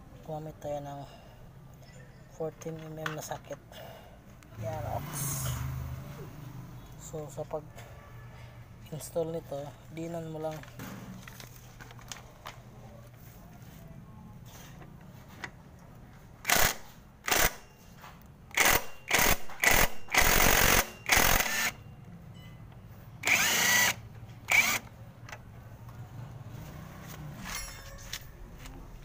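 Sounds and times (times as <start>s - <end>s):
impact wrench hammering: 18.5s - 21.8s.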